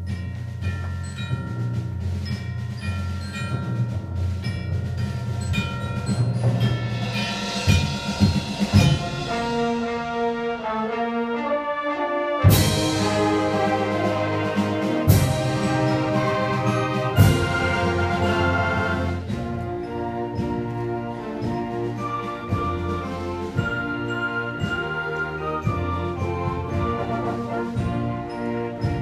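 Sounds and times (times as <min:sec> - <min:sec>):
loud percussion hits: 0:00.0 - 0:10.4, 0:12.5 - 0:25.0
symphonic band playing chords: 0:01.2 - 0:29.0.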